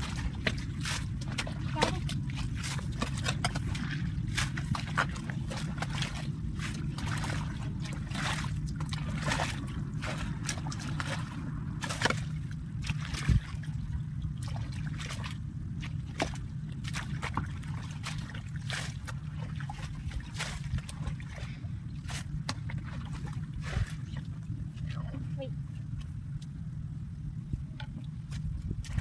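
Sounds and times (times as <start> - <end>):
stick scraping through mud: 0.0 - 12.3
muddy water sloshing: 0.0 - 29.0
steady low rumble: 0.0 - 29.0.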